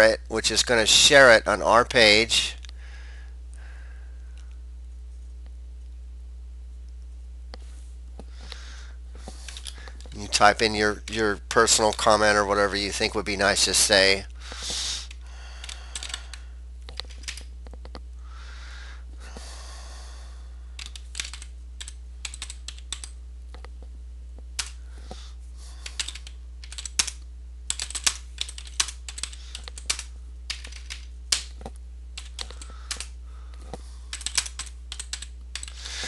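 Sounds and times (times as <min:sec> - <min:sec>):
steady low hum: 0:00.0 - 0:36.0
computer keyboard typing: 0:15.6 - 0:17.5, 0:20.8 - 0:23.2, 0:25.8 - 0:31.6, 0:32.2 - 0:33.1, 0:34.1 - 0:35.8.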